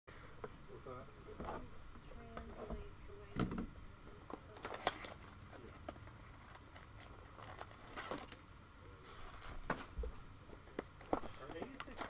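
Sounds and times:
card packs crinkling and rustling: 0:04.3 - 0:08.5, 0:10.6 - 0:12.0.

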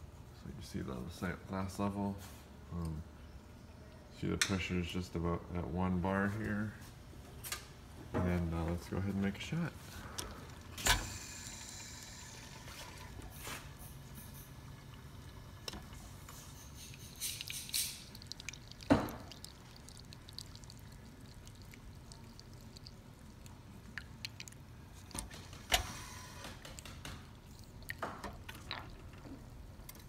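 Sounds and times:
low background hum: 0:00.0 - 0:30.0
espresso trickling into a cup: 0:10.0 - 0:26.8.

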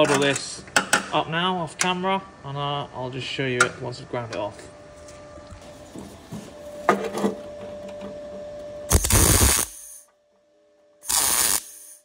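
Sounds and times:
welding arc crackle: 0:08.9 - 0:10.0, 0:11.0 - 0:12.0.

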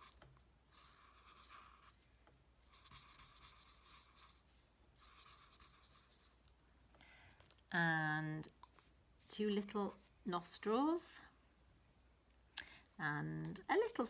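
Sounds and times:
marker scratching on paper: 0:00.0 - 0:06.4.

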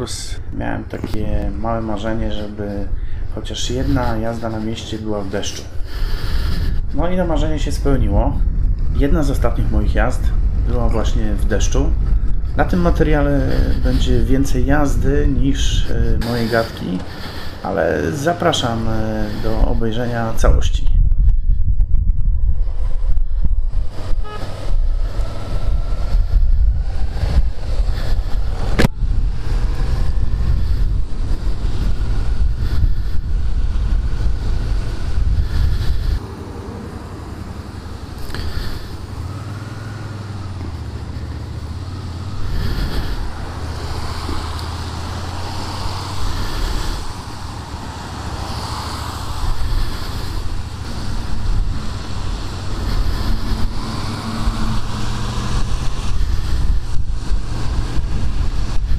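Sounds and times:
wind rush: 0:00.0 - 0:58.9
motorcycle engine running: 0:37.6 - 0:48.0.

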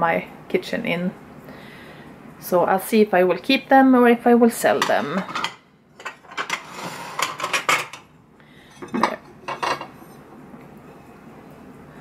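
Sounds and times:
ceramic plates clinking: 0:04.8 - 0:08.1, 0:08.7 - 0:10.2.

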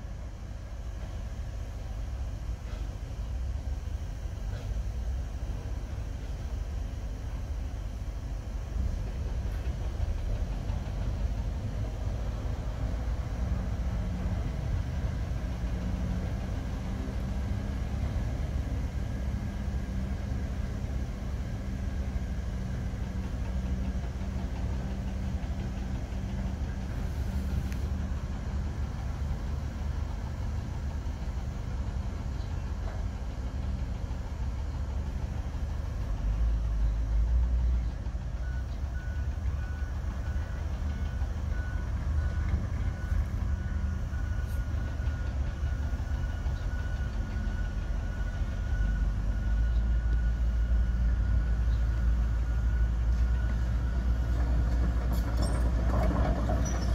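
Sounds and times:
heavy diesel engines running: 0:00.0 - 0:56.9
reversing alarm beeping: 0:38.4 - 0:54.7.

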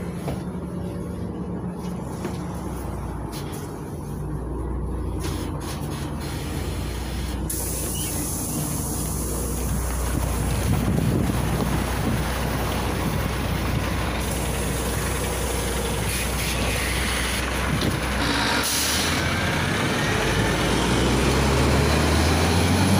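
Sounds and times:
bus engine droning: 0:00.0 - 0:22.9
compressed air hiss: 0:05.2 - 0:10.0, 0:14.2 - 0:15.2, 0:15.9 - 0:17.4.

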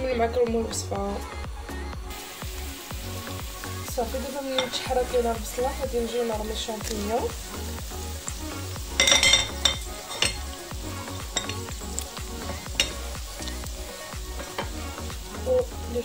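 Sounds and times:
vegetables sizzling in a frying pan: 0:02.1 - 0:16.0
utensil clicking against a pan: 0:08.2 - 0:10.6, 0:11.2 - 0:13.7, 0:14.4 - 0:14.8.

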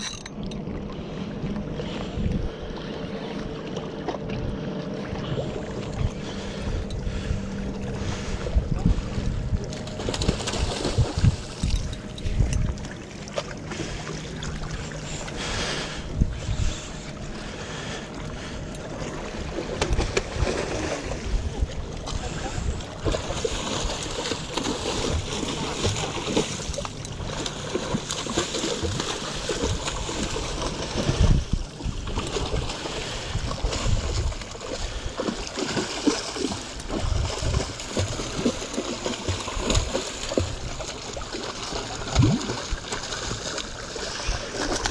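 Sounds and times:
wind buffeting microphone: 0:00.7 - 0:03.1, 0:05.2 - 0:28.0, 0:28.8 - 0:35.1, 0:36.8 - 0:38.5
fish thrashing and splashing: 0:09.8 - 0:21.3, 0:22.6 - 0:44.9.

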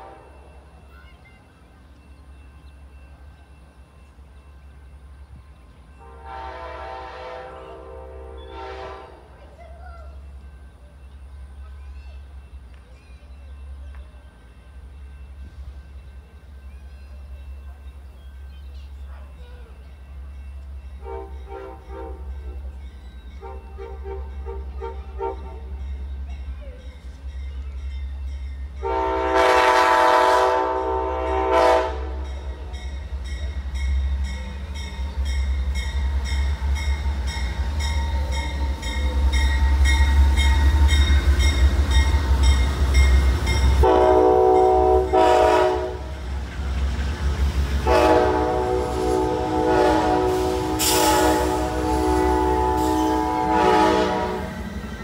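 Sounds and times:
locomotive horn blasts: 0:00.0 - 0:00.5, 0:06.0 - 0:09.3, 0:21.0 - 0:22.3, 0:28.8 - 0:32.7, 0:43.8 - 0:46.2, 0:47.8 - 0:54.7
train rumble: 0:00.0 - 0:55.0.

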